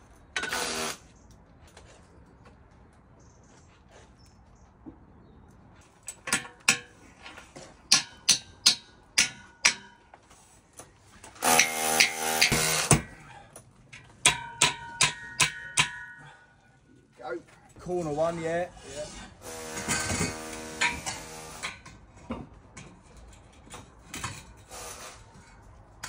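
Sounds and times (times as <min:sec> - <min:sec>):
power tool running: 0:00.4 - 0:01.0, 0:11.4 - 0:13.0, 0:19.4 - 0:21.6
hammer striking metal: 0:07.9 - 0:10.1, 0:11.4 - 0:13.2, 0:14.2 - 0:16.4.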